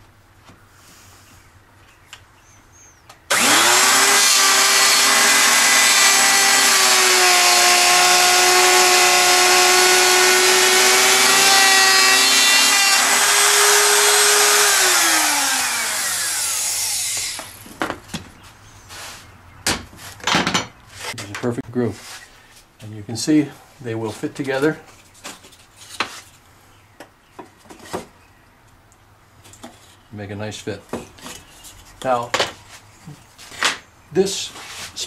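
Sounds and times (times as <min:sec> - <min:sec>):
electric router whining: 0:03.3 - 0:17.6
router cutting wood: 0:03.3 - 0:17.6.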